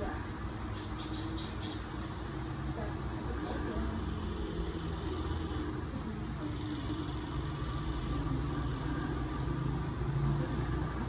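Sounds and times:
nippers snipping toenail: 0.5s - 6.6s.

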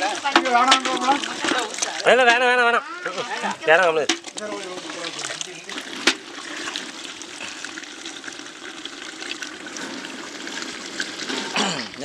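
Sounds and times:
ladle knocking metal pot: 0.0s - 2.5s, 3.7s - 6.3s
ladle stirring thick curry: 0.0s - 12.0s.

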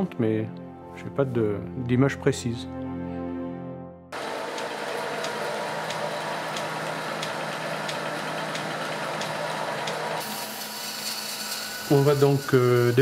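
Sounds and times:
belt-driven machine humming: 4.2s - 13.0s.

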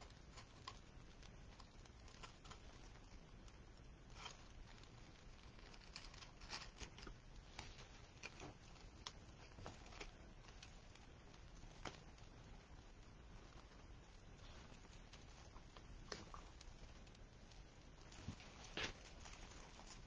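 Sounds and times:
hands rustling ribbon and mesh: 11.7s - 20.0s.

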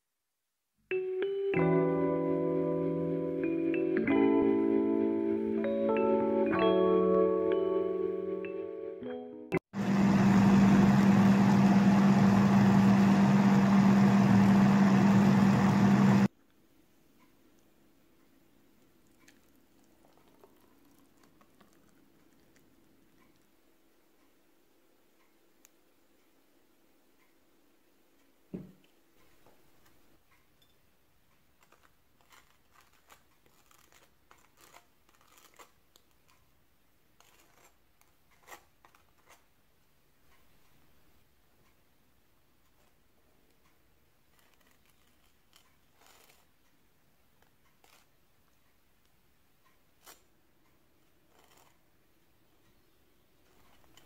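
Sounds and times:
blender motor running: 9.8s - 16.3s.

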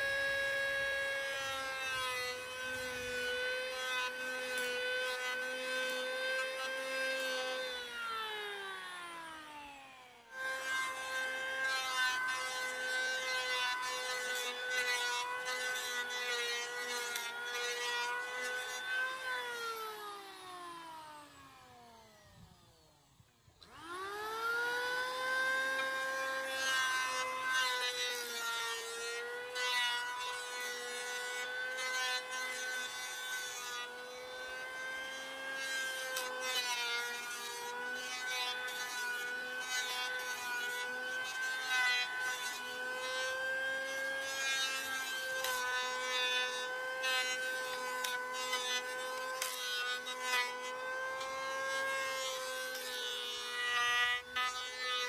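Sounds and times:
power tool motor whine: 0.0s - 55.0s.

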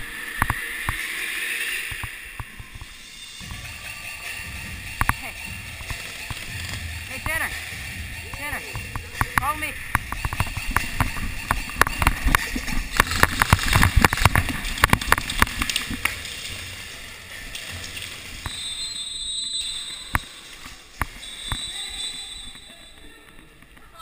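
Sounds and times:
pellets striking barriers: 3.4s - 17.0s.

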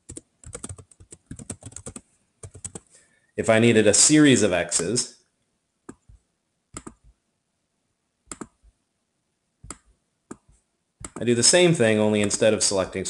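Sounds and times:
mouse and keyboard clicks: 6.8s - 7.1s, 8.3s - 8.6s, 9.6s - 11.2s.

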